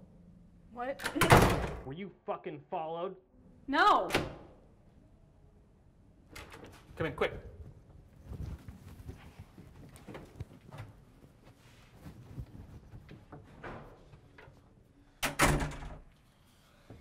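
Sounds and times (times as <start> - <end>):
door banging shut: 1.1 - 1.8, 15.2 - 16.0
soft shuffling: 6.8 - 14.9.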